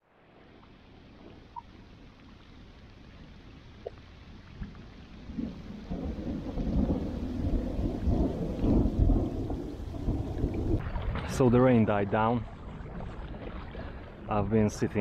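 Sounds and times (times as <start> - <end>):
rain falling on river: 0.0 - 15.0
rolling thunder rumble: 5.3 - 11.9.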